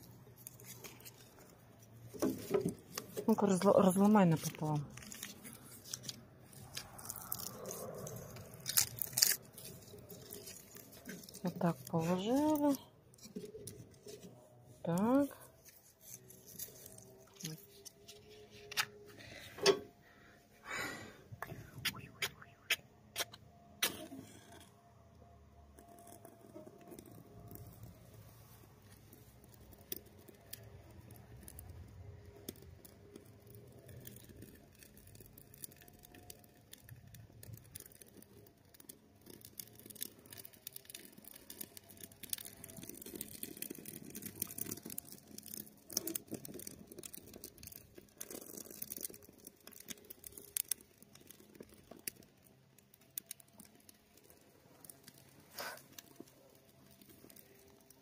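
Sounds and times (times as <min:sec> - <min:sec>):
kindling crackling and snapping: 0:00.0 - 0:25.0, 0:25.6 - 0:58.0.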